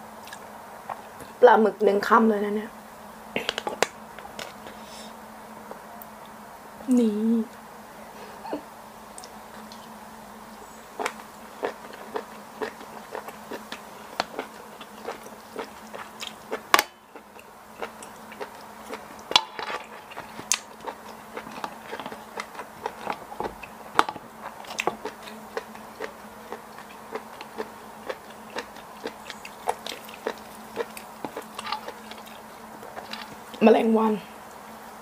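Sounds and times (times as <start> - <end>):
faint steady hum: 0.0 - 35.0
close-miked chewing: 10.5 - 33.6.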